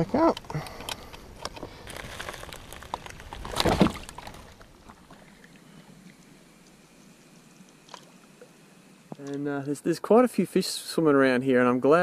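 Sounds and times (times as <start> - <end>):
faint water noise: 0.0 - 12.0
kayak hull knocking and scraping: 1.3 - 5.2
rush of hull and water: 2.0 - 6.5.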